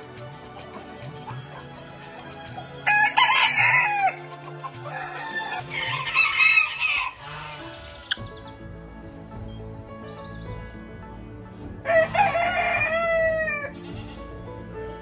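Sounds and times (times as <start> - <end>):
soft background music: 0.0 - 15.0
rooster crowing: 2.9 - 4.2, 4.9 - 7.2, 11.9 - 13.7.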